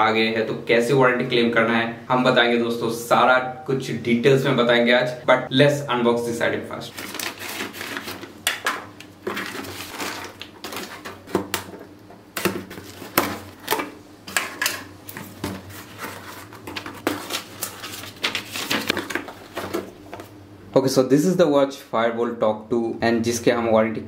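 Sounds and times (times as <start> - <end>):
paper crinkling: 6.9 - 8.3, 9.2 - 11.4, 15.2 - 20.3
plastic bag rustling: 6.9 - 11.9, 12.5 - 13.9, 15.1 - 20.4.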